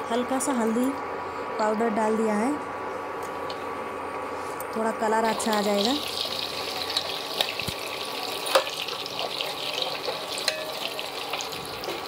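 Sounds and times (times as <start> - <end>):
hot oil sizzling and crackling: 5.3 - 12.0.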